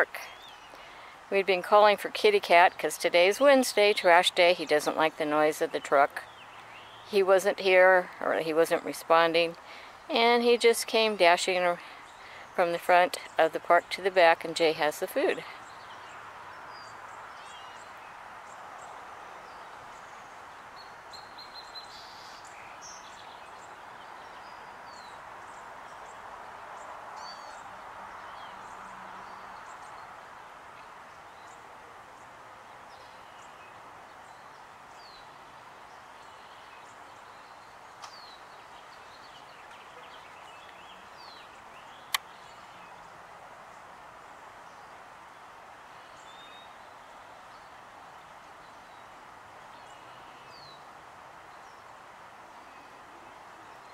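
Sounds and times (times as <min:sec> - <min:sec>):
background hiss: 0:00.0 - 0:53.9
small birds chirping: 0:00.0 - 0:53.9.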